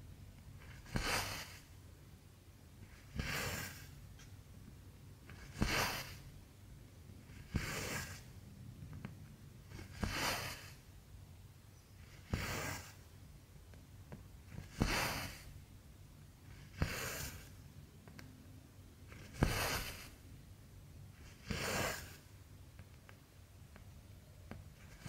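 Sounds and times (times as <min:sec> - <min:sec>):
thread swishing: 0:00.6 - 0:01.7, 0:05.3 - 0:06.3, 0:09.7 - 0:10.8, 0:19.1 - 0:20.2.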